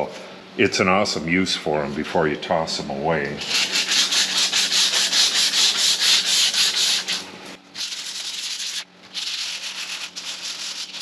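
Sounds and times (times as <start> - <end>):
sanding disc rasping on metal: 3.4 - 7.2, 7.8 - 11.0.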